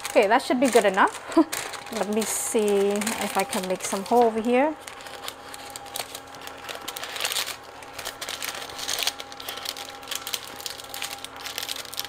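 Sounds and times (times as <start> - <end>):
paper crinkling: 0.0 - 12.0
scissors snipping paper: 0.0 - 12.0.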